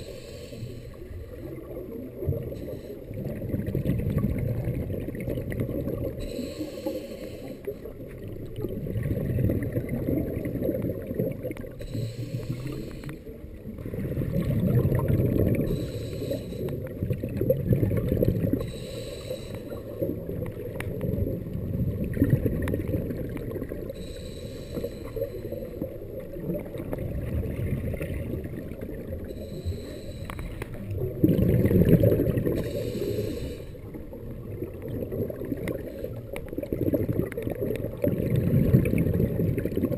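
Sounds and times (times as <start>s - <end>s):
regulator inhale hiss: 0.0s - 1.6s, 2.5s - 3.2s, 6.2s - 8.0s, 11.7s - 13.4s, 15.6s - 16.9s, 18.6s - 20.0s, 24.0s - 25.9s, 29.2s - 30.9s, 32.5s - 34.0s
exhaled bubbles underwater: 0.0s - 39.9s.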